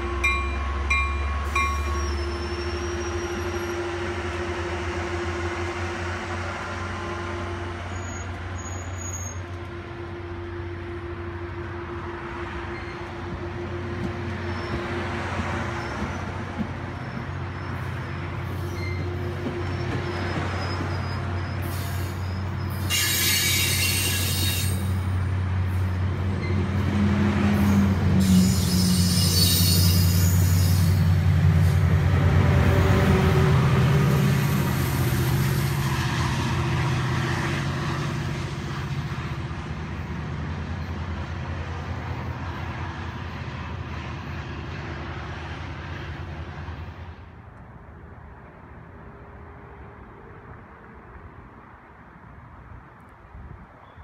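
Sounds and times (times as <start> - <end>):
diesel locomotive engine hum: 0.0 - 54.0
train coaches rolling past: 0.0 - 54.0
high wheel squeal: 0.3 - 4.0, 7.8 - 9.5, 12.7 - 13.2, 14.3 - 25.0, 27.6 - 31.1.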